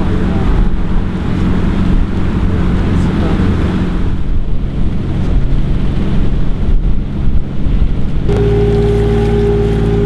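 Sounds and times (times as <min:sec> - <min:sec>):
boat engine running: 0:00.0 - 0:10.0
wash of boat wake: 0:00.0 - 0:10.0
wind buffeting microphone: 0:00.0 - 0:10.0
machine hum with high whine: 0:08.1 - 0:10.0.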